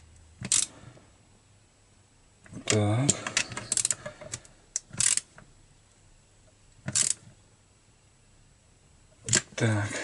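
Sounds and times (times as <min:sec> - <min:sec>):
nut driver scraping: 0:02.5 - 0:05.4, 0:06.8 - 0:07.3
nut driver clicks: 0:06.8 - 0:07.2.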